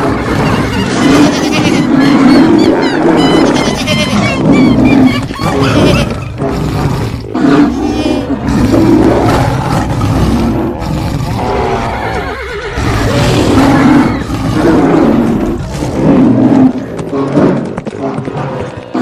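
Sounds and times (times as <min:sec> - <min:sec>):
low rumble of running animals: 0:00.0 - 0:19.0
wild animal roars: 0:00.0 - 0:19.0
horse whinnying: 0:00.4 - 0:06.3, 0:11.6 - 0:13.0.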